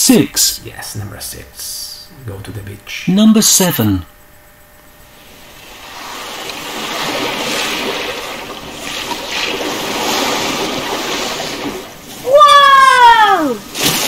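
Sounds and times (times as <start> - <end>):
wind: 4.2 - 14.0
sea waves: 5.1 - 14.0.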